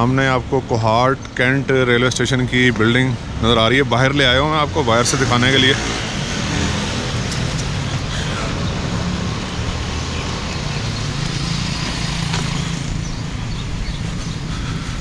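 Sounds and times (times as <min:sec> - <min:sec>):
engine hum: 0:03.4 - 0:15.0.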